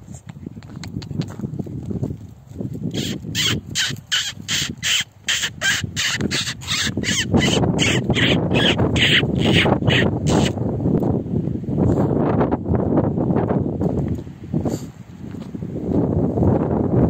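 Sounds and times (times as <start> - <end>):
short raspy predator calls: 2.9 - 10.6.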